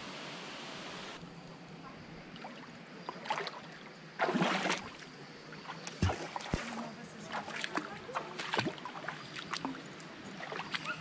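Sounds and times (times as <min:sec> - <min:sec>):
water sloshing on rocks: 0:02.4 - 0:11.0
loud splash: 0:04.2 - 0:05.0.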